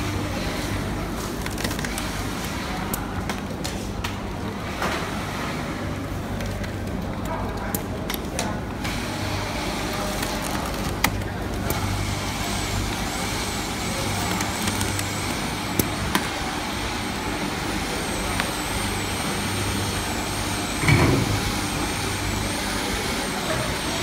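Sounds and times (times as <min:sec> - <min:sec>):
machine humming: 0:08.6 - 0:24.0.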